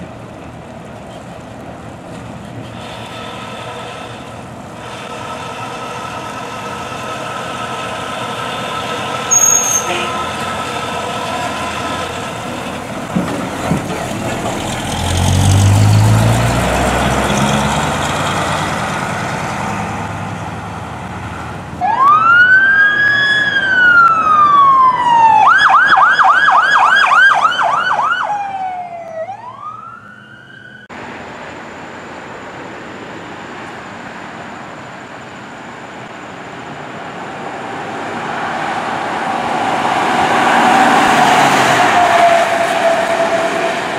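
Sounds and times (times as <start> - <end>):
truck engine rumbling: 0.0 - 22.5
road traffic noise: 0.0 - 43.9
emergency siren wailing and yelping: 21.8 - 30.9.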